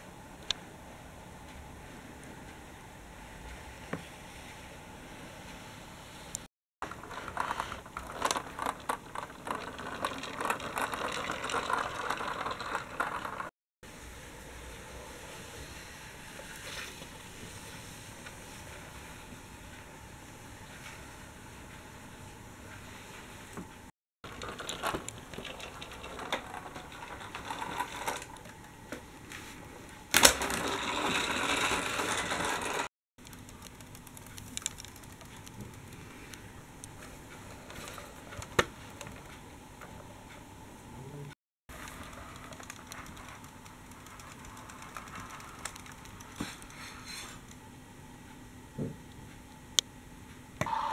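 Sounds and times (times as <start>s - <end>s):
toy bus rolling on cardboard: 6.8s - 13.5s, 24.2s - 28.7s, 30.2s - 32.9s, 41.7s - 47.3s
toy wheels clicking and rattling: 6.8s - 13.5s, 24.2s - 28.5s, 30.2s - 36.0s, 41.7s - 47.2s
plastic toy clicking and rattling: 30.2s - 36.0s, 41.7s - 46.8s.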